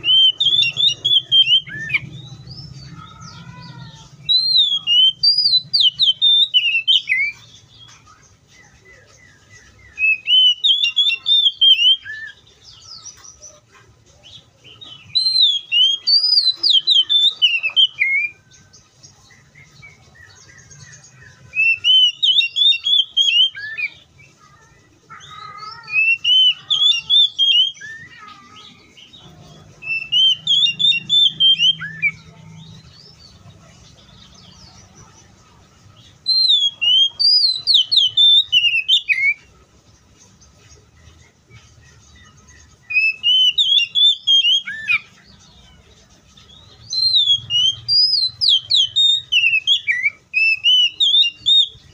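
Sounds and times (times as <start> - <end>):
bird singing whistled phrases: 0.0 - 2.7, 4.2 - 7.4, 9.6 - 12.4, 14.9 - 18.5, 19.7 - 24.1, 25.3 - 28.4, 29.8 - 32.3, 36.2 - 39.5, 42.8 - 45.2, 46.8 - 51.9.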